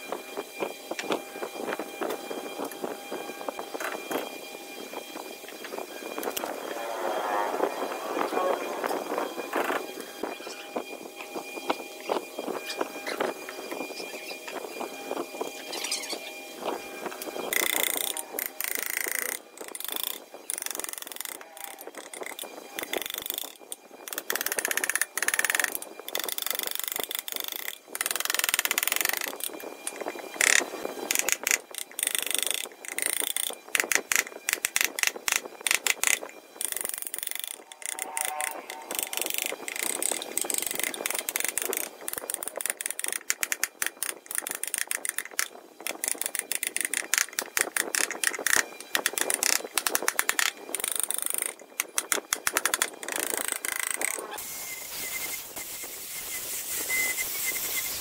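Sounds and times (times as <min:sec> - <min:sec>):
chisel scraping wood: 0:17.5 - 0:54.3.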